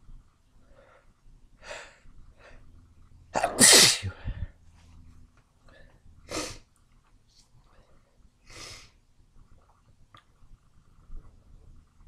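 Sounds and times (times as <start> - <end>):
person sneezing: 3.4 - 4.3.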